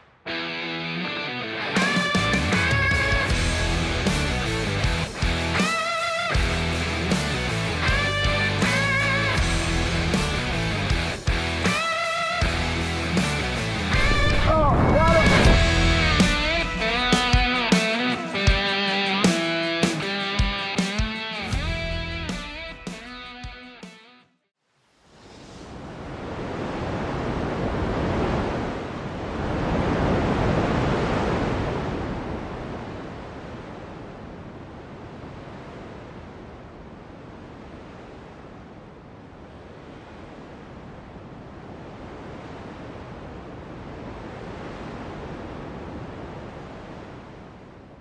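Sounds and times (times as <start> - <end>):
rushing wind: 9.2 - 18.7, 24.9 - 48.0.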